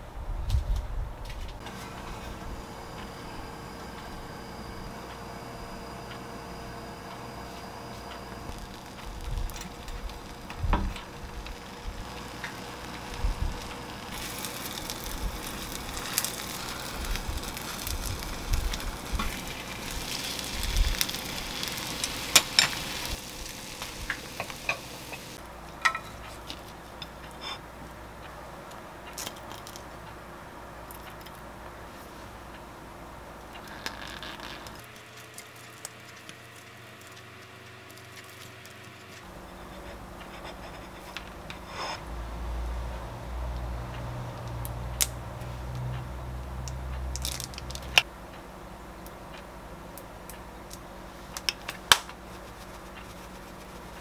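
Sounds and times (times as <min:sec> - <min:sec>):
egg sizzling in a pan: 0:01.6 - 0:26.0, 0:46.6 - 0:48.1, 0:51.3 - 0:54.0
wooden spatula scraping a pan: 0:39.6 - 0:42.0.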